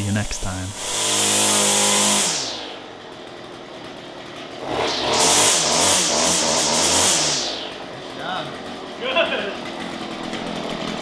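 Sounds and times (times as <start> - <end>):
string trimmer engine revving: 0.0 - 11.0.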